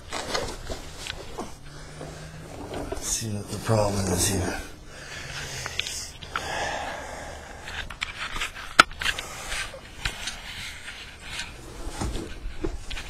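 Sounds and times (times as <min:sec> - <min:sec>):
scrapes and rustles: 0:00.0 - 0:13.0.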